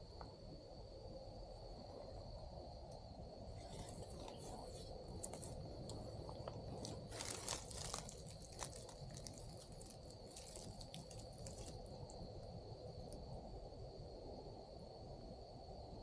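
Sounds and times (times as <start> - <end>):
dry leaves crunching: 6.4 - 11.9.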